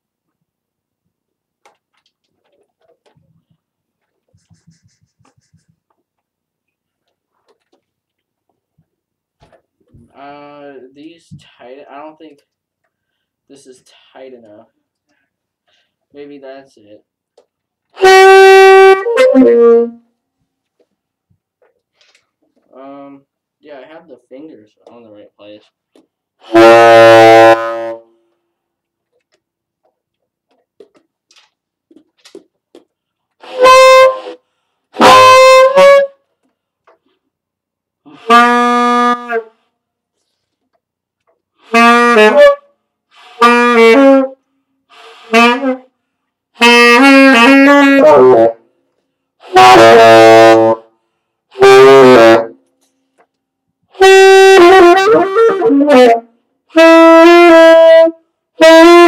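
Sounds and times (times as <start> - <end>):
tenor saxophone notes: 18.0 - 20.1, 26.4 - 28.1, 33.4 - 34.4, 35.0 - 36.2, 38.1 - 39.6, 41.6 - 45.9, 46.6 - 48.6, 49.4 - 50.9, 51.5 - 52.6, 54.0 - 59.0.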